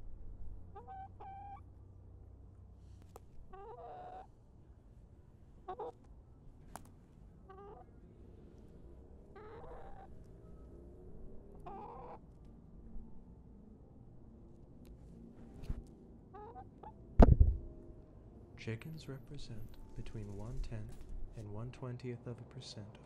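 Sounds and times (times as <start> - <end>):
young chickens calling: 0.7 - 1.6, 3.5 - 4.3, 5.7 - 6.0, 9.4 - 10.1, 11.6 - 12.2.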